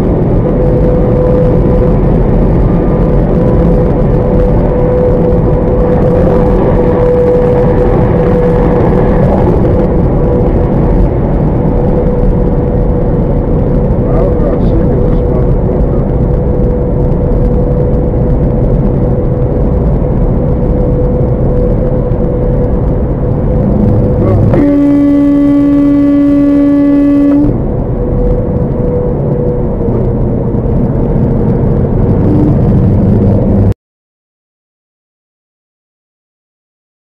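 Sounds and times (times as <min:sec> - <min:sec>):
car road and wind noise: 0:00.0 - 0:33.8
vehicle horn blast: 0:24.0 - 0:27.6.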